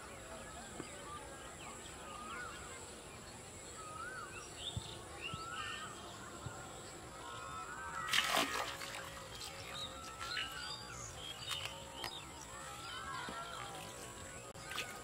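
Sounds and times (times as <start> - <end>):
small birds warbling: 0.2 - 15.0
fish splashing out of water: 8.0 - 9.6.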